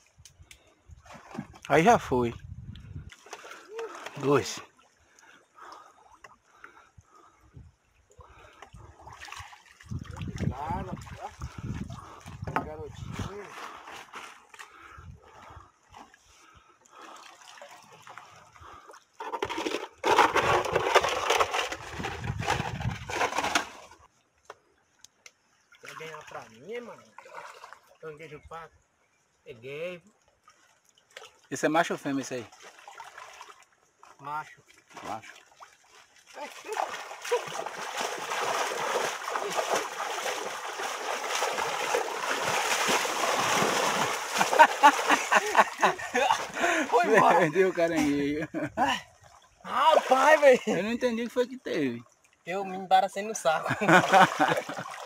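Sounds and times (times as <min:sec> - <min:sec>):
wading through shallow water: 0:00.0 - 0:29.2, 0:30.0 - 0:52.6, 0:53.5 - 0:55.0
hands splashing in shallow water: 0:34.7 - 0:47.0.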